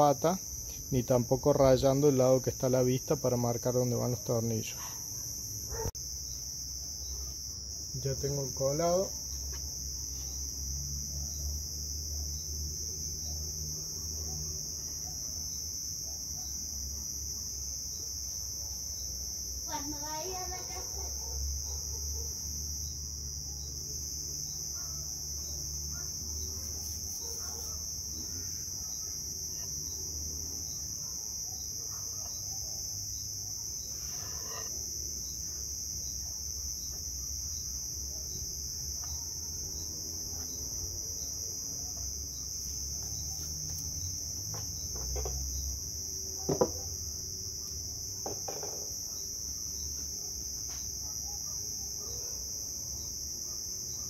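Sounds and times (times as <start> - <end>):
insects buzzing: 0.0 - 54.0
sharp knock on wood: 46.5 - 46.8.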